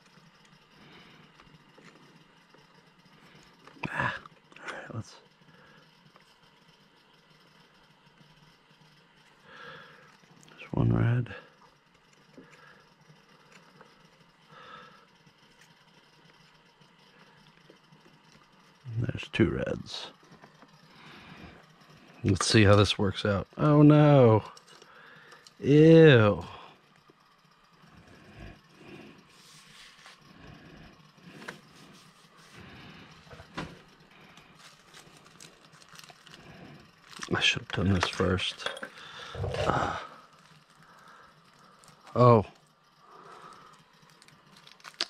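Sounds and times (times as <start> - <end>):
handling small parts: 33.2 - 42.7, 43.3 - 45.0.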